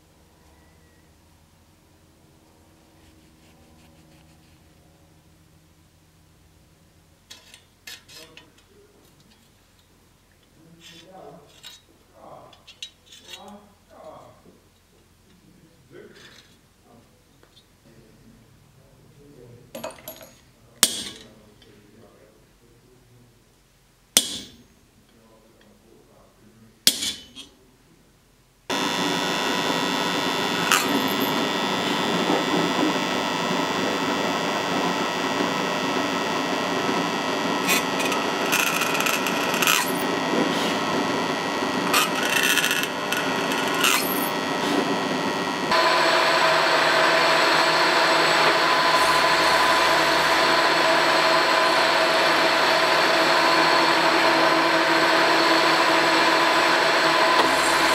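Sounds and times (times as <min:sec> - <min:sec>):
drill press drilling brass: 0:28.7 - 0:57.9
milling machine cutting metal: 0:28.7 - 0:57.9.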